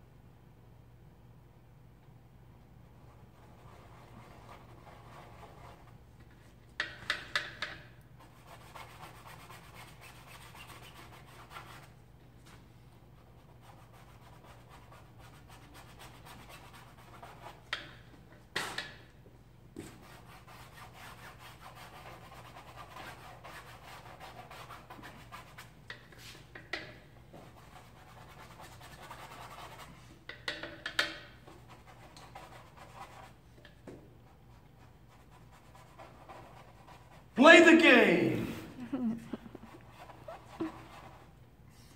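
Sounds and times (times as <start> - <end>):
paintbrush scratching on canvas: 3.0 - 6.0, 19.9 - 26.4, 27.4 - 30.1, 31.5 - 33.4, 34.3 - 37.4, 39.5 - 41.4.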